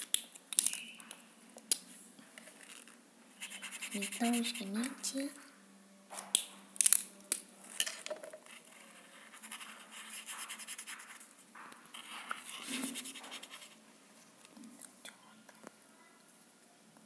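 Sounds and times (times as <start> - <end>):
felt-tip pen scratching on paper: 3.4 - 5.0, 8.5 - 11.3, 11.9 - 13.8.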